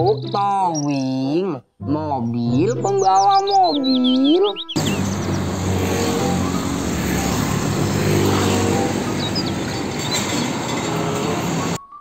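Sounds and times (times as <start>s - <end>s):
faint bird chirps: 2.5s - 5.2s
traffic noise: 4.5s - 11.8s
diesel truck engine running: 4.8s - 11.8s.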